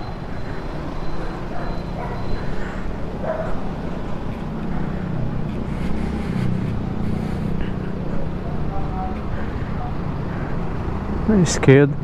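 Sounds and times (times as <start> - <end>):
dogs barking and yipping: 0.0 - 5.0.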